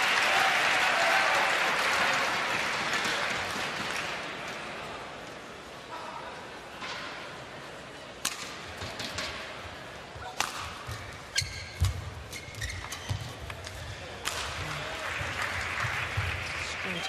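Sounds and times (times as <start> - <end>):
rackets striking shuttlecock: 8.2 - 9.4, 10.2 - 14.8
shoe squeak: 11.3 - 13.4.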